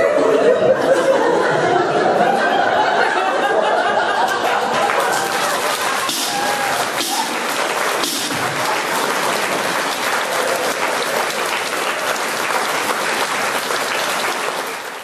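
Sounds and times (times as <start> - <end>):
audience applauding: 3.3 - 15.0.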